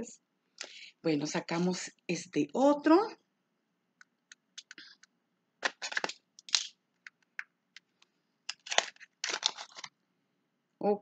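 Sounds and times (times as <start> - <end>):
packaging clicks and crackles: 5.6 - 10.0.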